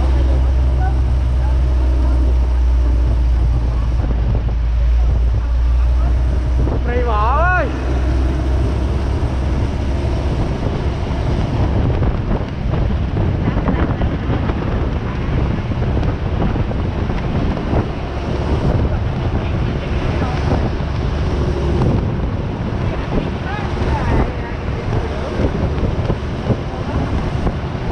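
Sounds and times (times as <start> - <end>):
steady low rumble: 0.0 - 27.9
wind buffeting microphone: 0.0 - 27.9.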